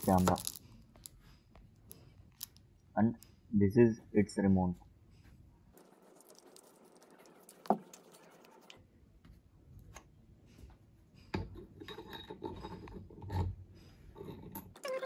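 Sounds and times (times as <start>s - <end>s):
rubbing and clinking of parts: 0.0s - 1.2s, 11.4s - 15.0s.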